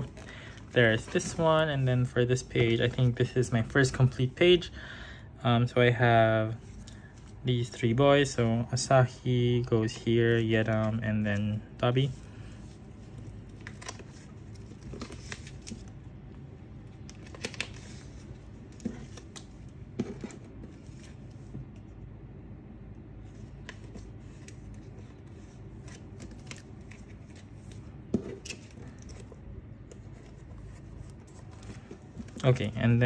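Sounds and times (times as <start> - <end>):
plastic sleeves rustling: 0.0 - 4.3, 9.6 - 16.2, 16.9 - 21.8, 23.2 - 33.0
low steady hum: 0.0 - 33.0.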